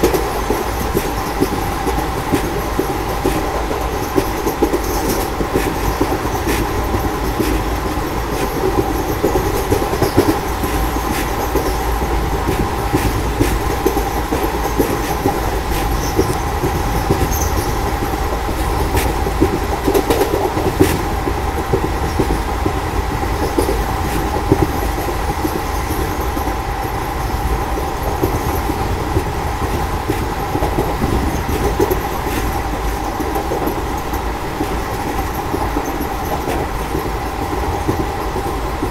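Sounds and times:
train wheels rumbling on rail: 0.0s - 38.9s.

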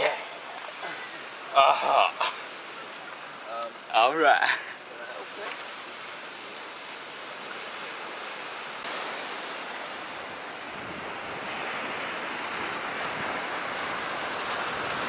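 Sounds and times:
small waves breaking on beach: 0.0s - 15.0s.

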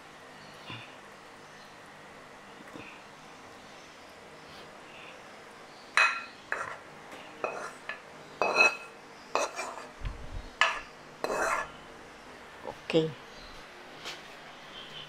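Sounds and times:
spoon clinking on ceramic plate: 6.0s - 6.8s, 7.4s - 9.8s.

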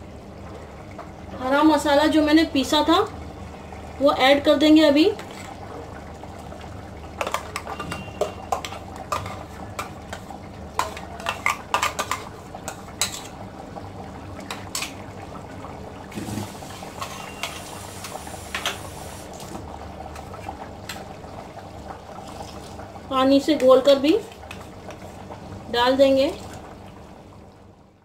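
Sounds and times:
curry bubbling: 0.0s - 27.8s.

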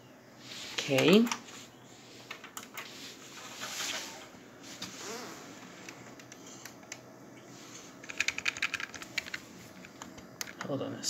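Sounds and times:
keyboard key presses: 8.0s - 10.7s.

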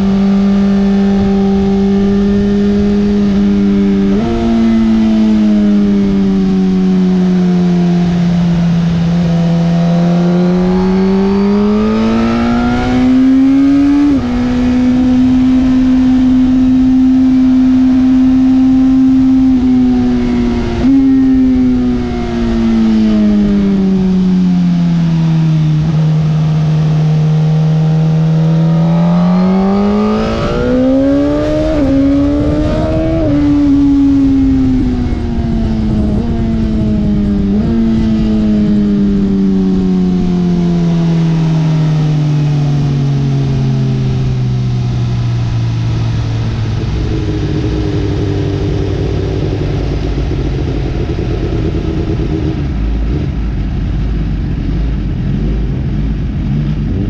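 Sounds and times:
motorcycle engine revving: 0.0s - 57.0s
steady rushing noise: 18.9s - 57.0s.

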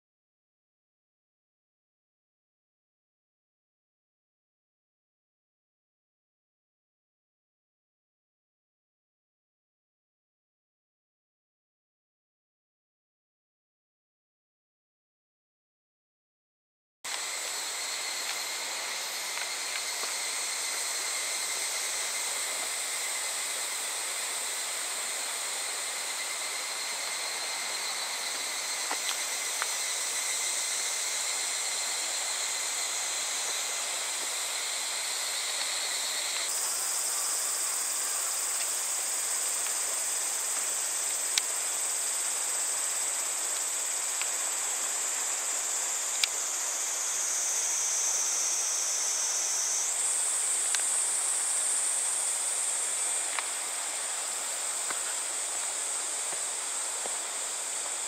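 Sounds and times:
insects shrilling: 17.1s - 58.0s.

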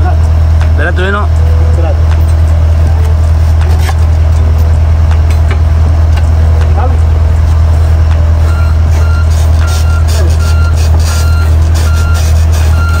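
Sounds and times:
excavator diesel engine droning: 0.0s - 13.0s
travel alarm beeping: 8.4s - 13.0s.

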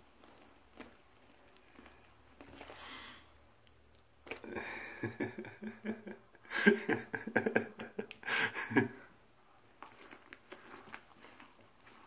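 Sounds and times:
man laughing: 4.4s - 9.1s.

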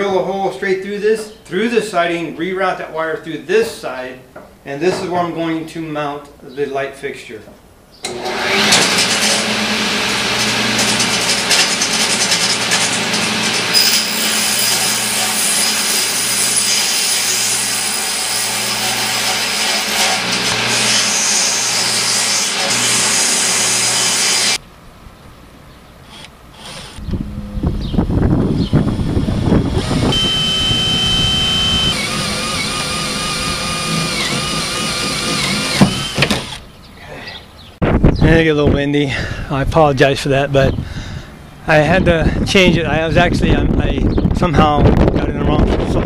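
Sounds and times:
table saw cutting wood: 8.0s - 24.6s, 28.7s - 36.6s
wind rumbling on microphone: 27.0s - 31.5s, 37.8s - 46.0s.

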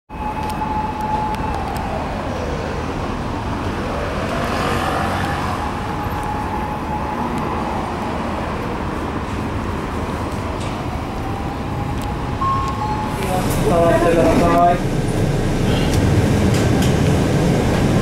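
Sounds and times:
siren wailing: 0.1s - 8.5s, 10.8s - 14.8s
bus engine running: 7.9s - 18.0s.

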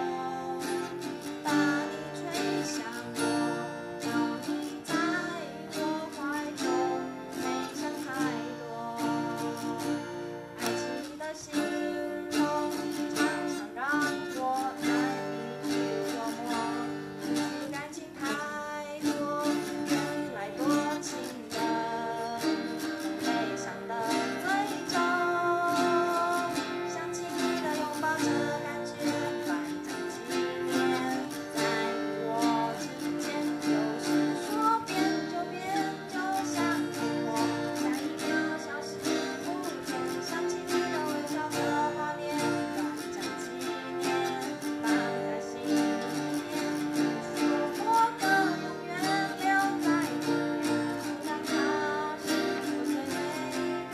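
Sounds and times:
acoustic guitars strumming: 0.0s - 53.9s
girl singing: 0.0s - 53.9s.

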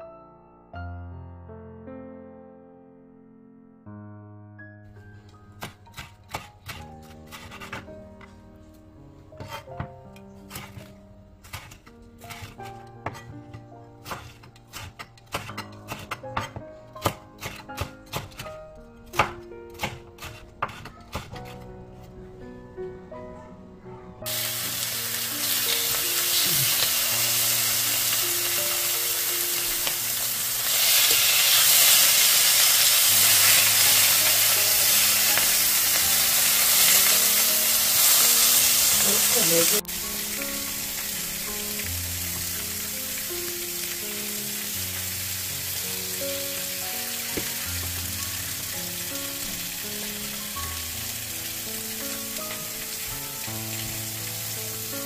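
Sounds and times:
pork sizzling in a frying pan: 10.5s - 18.5s, 24.3s - 55.0s.

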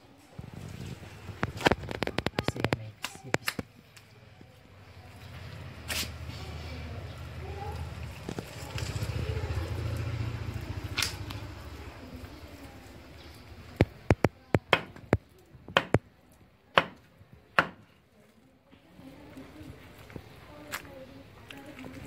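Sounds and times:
cleaver chopping on wooden block: 14.1s - 15.1s, 15.7s - 16.0s, 16.7s - 17.0s, 17.6s - 17.9s.

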